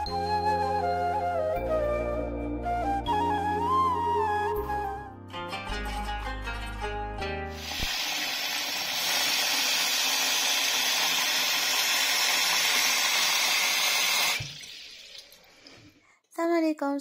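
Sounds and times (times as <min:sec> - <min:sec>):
tap water splashing into scoop: 0:07.6 - 0:15.9
faint water dribble: 0:14.3 - 0:16.0.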